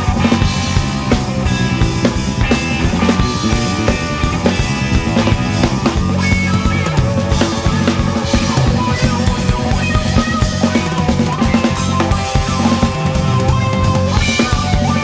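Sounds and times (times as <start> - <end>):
busy drumming: 0.0 - 15.0
electric bass: 0.0 - 15.0
electric guitar: 0.0 - 15.0.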